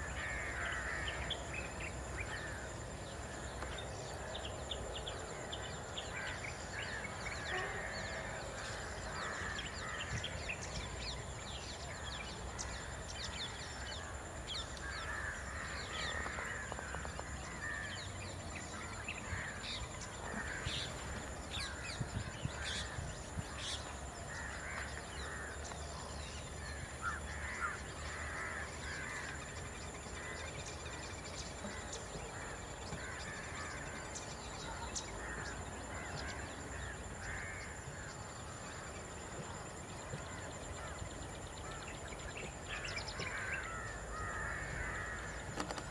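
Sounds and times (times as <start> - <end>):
crows cawing: 0.1 - 1.2, 27.0 - 29.3, 35.2 - 38.1, 42.7 - 45.7.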